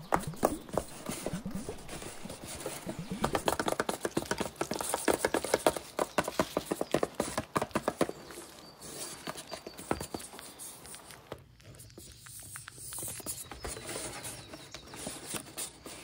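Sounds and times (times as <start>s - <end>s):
fingertips tapping cardboard box: 2.7s - 10.6s.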